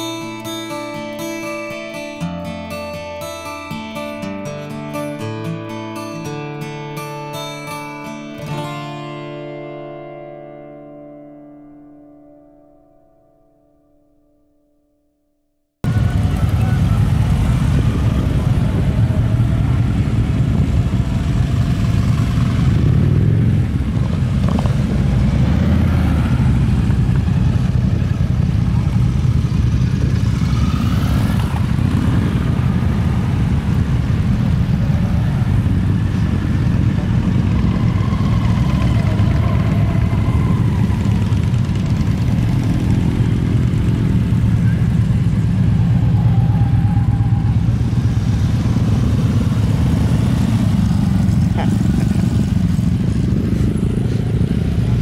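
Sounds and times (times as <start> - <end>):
faint voices: 15.8 - 21.6
motorcycle engines: 15.8 - 55.0
vehicle engines rumbling: 15.8 - 55.0.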